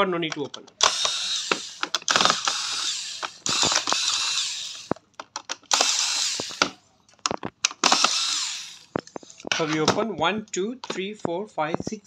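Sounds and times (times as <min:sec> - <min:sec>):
electric screwdriver running: 0:00.8 - 0:05.0, 0:05.7 - 0:06.8, 0:07.8 - 0:09.0.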